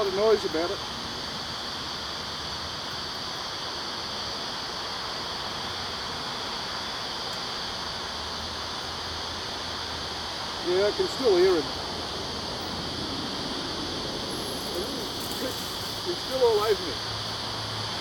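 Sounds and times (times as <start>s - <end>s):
steady high hiss: 0.0s - 18.0s
honeybees buzzing: 10.6s - 18.0s.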